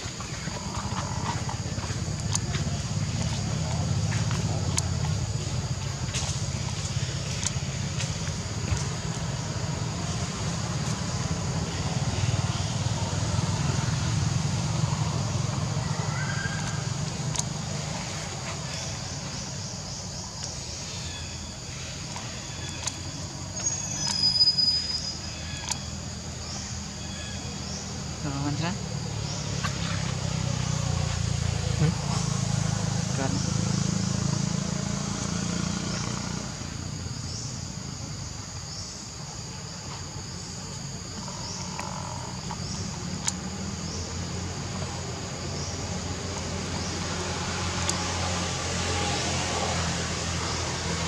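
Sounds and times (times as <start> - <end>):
insects droning: 0.0 - 51.0
sharp clicks: 16.6 - 17.6, 22.1 - 24.2
faint high chirps: 22.6 - 26.0.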